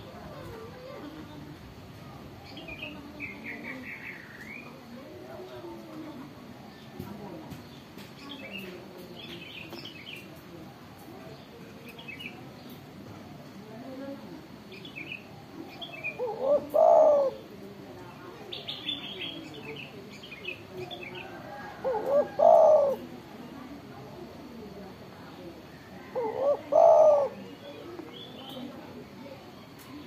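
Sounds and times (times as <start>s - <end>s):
dove cooing: 15.3s - 17.8s, 20.8s - 23.3s, 25.9s - 28.0s.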